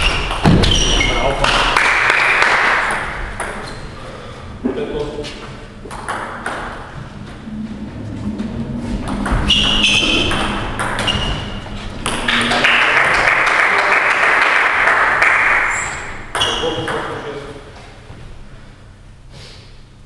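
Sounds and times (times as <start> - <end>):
short high squeaks: 0.0 - 1.3, 9.4 - 11.7
loud steady rush of noise: 1.7 - 11.0.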